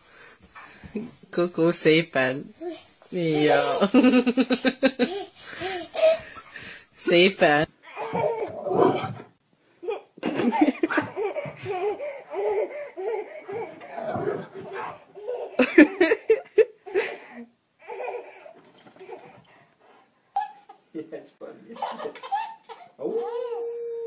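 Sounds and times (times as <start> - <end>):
baby laughing: 2.6 - 6.6, 7.9 - 8.6, 9.8 - 17.2, 17.8 - 19.4, 20.3 - 20.9, 21.8 - 23.7.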